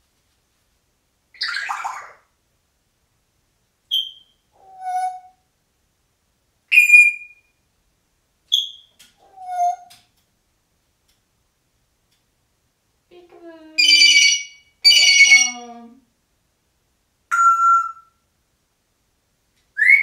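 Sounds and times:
parrot whistled notes: 13.8s - 15.6s, 17.3s - 18.1s
parrot mimicking electronic beeps: 13.8s - 15.8s.

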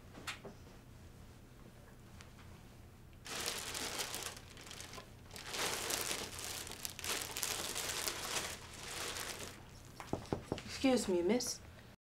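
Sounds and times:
plastic bag crinkling: 3.3s - 10.2s.

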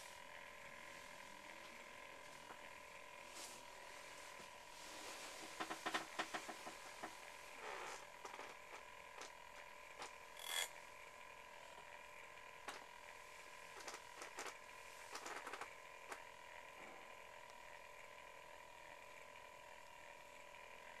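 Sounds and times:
faint clicks and creaks: 5.0s - 10.7s, 13.7s - 16.2s.

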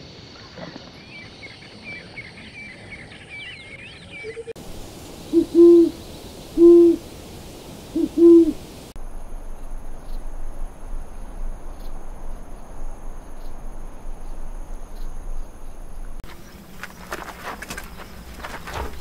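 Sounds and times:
owl hooting: 4.2s - 9.0s.

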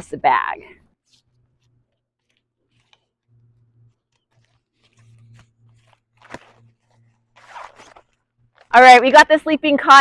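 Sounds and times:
canvas bag rustling: 1.0s - 8.8s.

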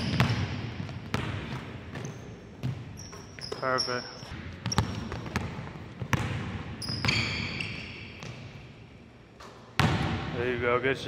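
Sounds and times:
basketball bouncing on hardwood: 0.0s - 3.2s, 4.6s - 7.2s
sneakers squeaking: 0.0s - 8.8s.

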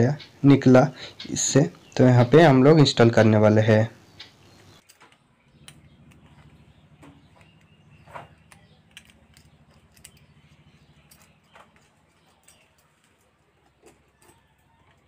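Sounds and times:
metal hand guard clicks and taps: 8.4s - 10.2s.

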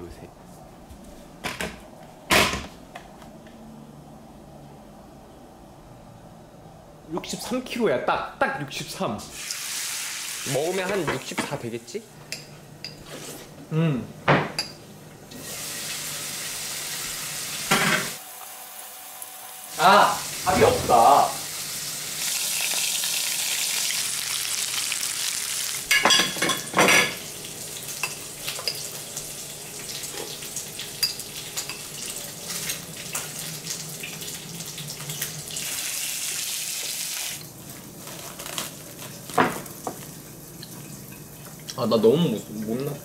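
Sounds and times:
pork sizzling in a pan: 9.3s - 11.0s, 15.4s - 41.6s.

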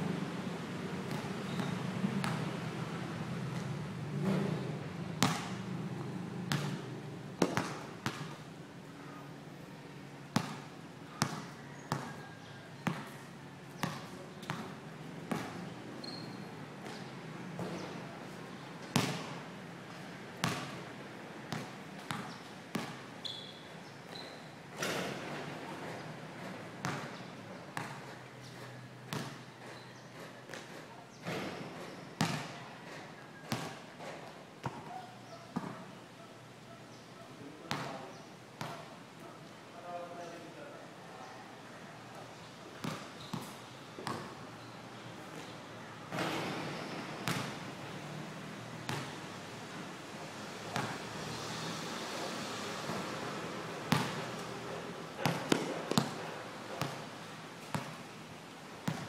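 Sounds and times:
basketball bouncing on concrete: 1.1s - 2.5s, 5.2s - 5.6s, 6.5s - 8.4s, 10.4s - 12.1s, 12.8s - 17.0s, 19.0s - 19.3s, 20.4s - 20.8s, 21.5s - 23.1s, 26.8s - 28.1s, 29.1s - 29.8s, 30.5s - 32.6s, 33.5s - 35.8s, 37.7s - 38.0s, 38.6s - 38.8s, 42.8s - 44.3s, 47.2s - 47.5s, 48.9s - 49.1s, 53.9s - 54.2s, 55.2s - 56.2s, 56.8s - 57.0s, 57.6s - 58.0s.

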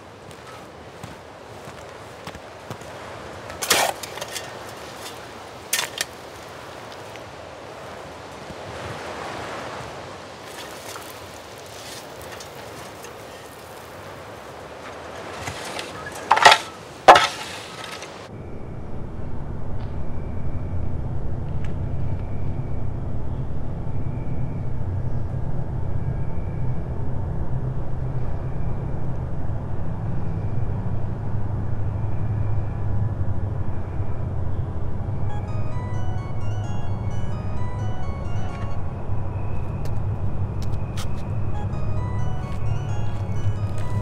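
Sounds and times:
shovel scraping gravelly dirt: 3.5s - 6.5s, 10.4s - 18.3s
steady low drone: 18.3s - 44.0s
faint high tone: 35.3s - 44.0s.

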